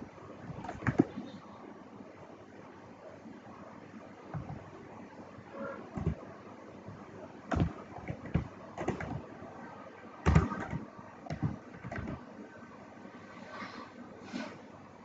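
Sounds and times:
keyboard keystrokes clicking: 7.5s - 9.2s, 10.2s - 12.2s.

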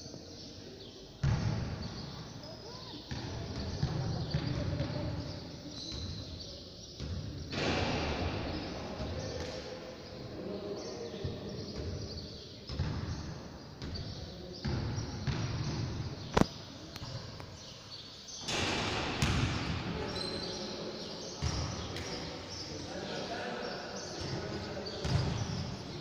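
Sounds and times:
basketball game noise in gym: 0.0s - 26.0s
sharp bang: 7.5s - 8.7s, 18.4s - 20.1s.

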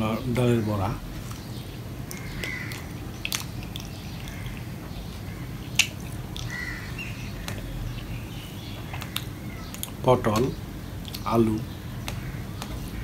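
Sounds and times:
steady low hum: 0.0s - 13.0s
wet chewing and lip smacks: 1.2s - 4.9s, 5.7s - 6.6s, 8.7s - 10.0s, 11.0s - 11.3s
fingers mixing food: 1.2s - 7.7s, 12.0s - 13.0s.

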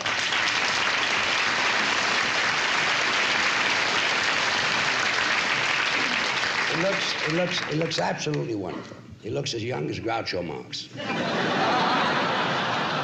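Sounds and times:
large audience applauding: 0.0s - 8.4s.

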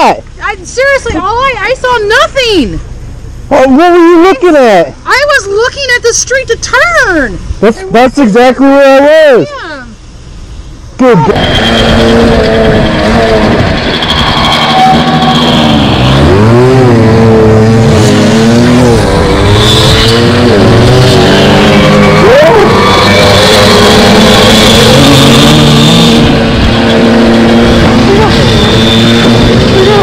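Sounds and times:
dirt bike engine revving: 11.0s - 30.0s.

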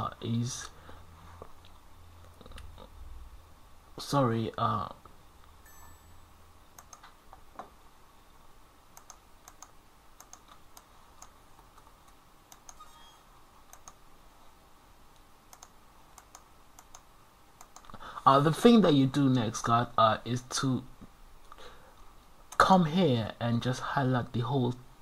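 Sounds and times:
low steady hum: 0.0s - 25.0s
keyboard and mouse clicks: 6.7s - 7.5s, 8.9s - 13.0s, 13.7s - 14.0s, 15.1s - 18.0s.

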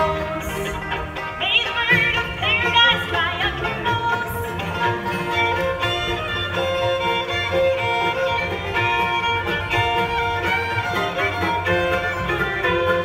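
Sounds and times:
acoustic guitar: 0.0s - 7.2s
banjo: 0.0s - 13.0s
fiddle melody: 0.0s - 13.0s.

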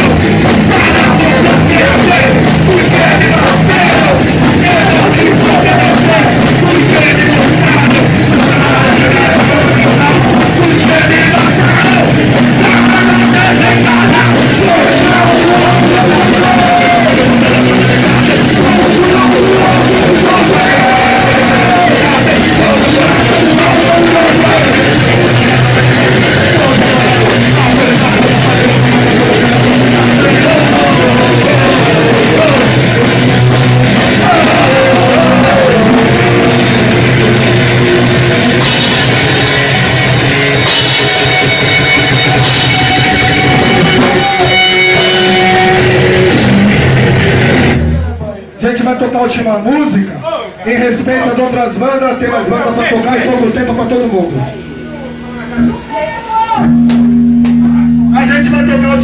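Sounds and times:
sung vocals: 0.0s - 47.0s
punk rock band playing: 0.0s - 50.1s, 50.7s - 59.0s.

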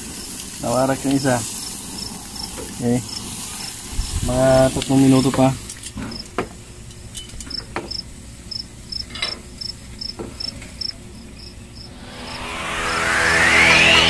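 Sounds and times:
music: 11.9s - 14.0s.

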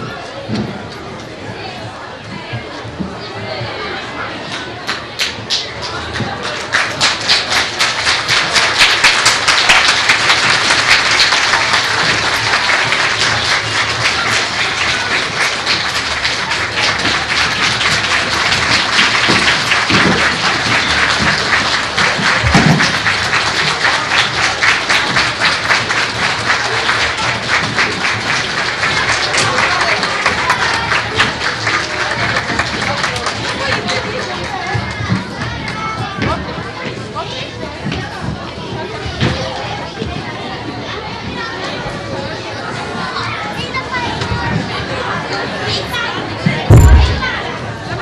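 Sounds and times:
audience applauding: 5.2s - 34.6s.

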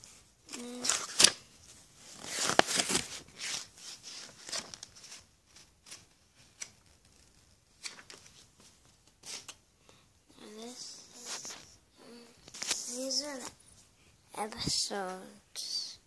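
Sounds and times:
scraping against camera microphone: 11.0s - 11.8s.

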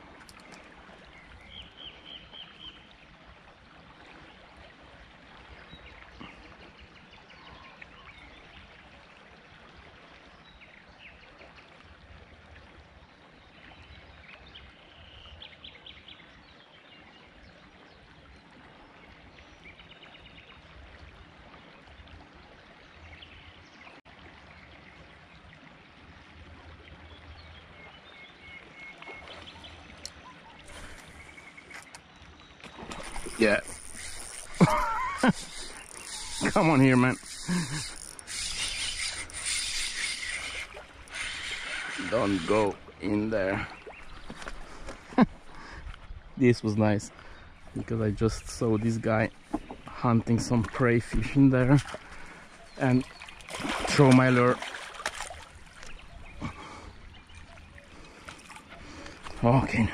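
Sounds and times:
flowing river water: 0.0s - 59.9s
bird chirps: 33.0s - 42.5s.

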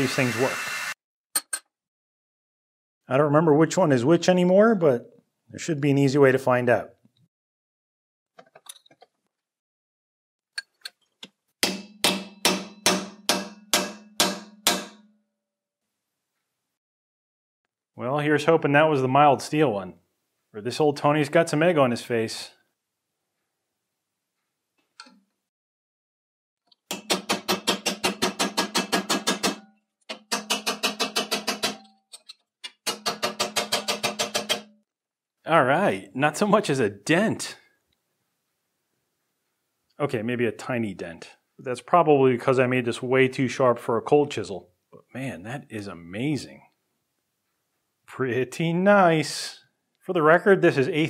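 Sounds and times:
hammer striking steel chisel: 11.6s - 15.2s, 26.9s - 34.8s.

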